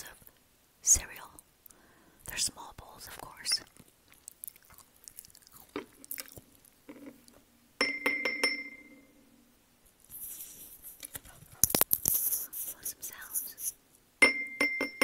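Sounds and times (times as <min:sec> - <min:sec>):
ceramic bowl clinking on table: 0:07.8 - 0:09.0, 0:14.2 - 0:15.0
fingers rustling on microphone: 0:09.9 - 0:13.8.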